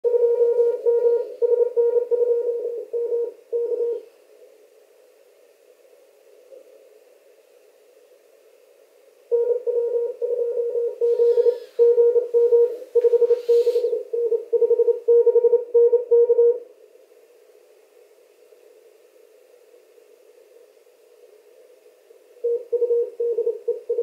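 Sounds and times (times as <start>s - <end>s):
receiver hiss: 0.1s - 24.0s
morse code tone: 9.3s - 13.3s.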